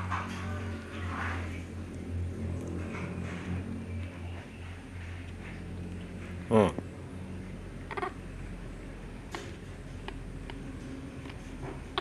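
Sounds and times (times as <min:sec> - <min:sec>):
faint clicks of eating: 0:05.1 - 0:06.4.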